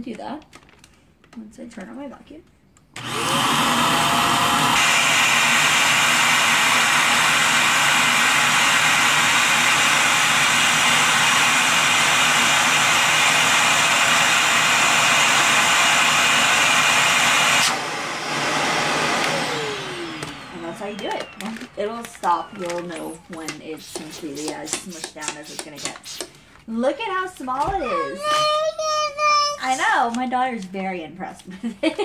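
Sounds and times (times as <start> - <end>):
vacuum motor winding down: 3.0 - 23.7
vacuum cleaner running: 3.0 - 26.2.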